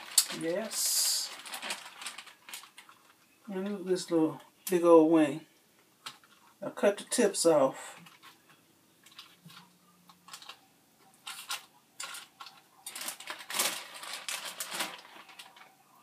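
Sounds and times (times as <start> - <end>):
plastic bag rustling: 0.0 - 4.1, 7.8 - 16.0.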